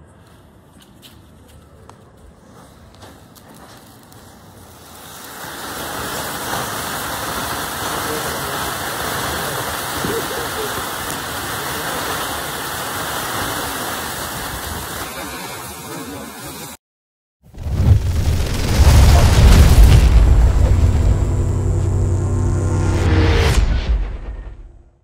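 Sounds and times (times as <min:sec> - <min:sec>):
firework fountain hissing: 0:03.0 - 0:16.8, 0:18.0 - 0:23.0.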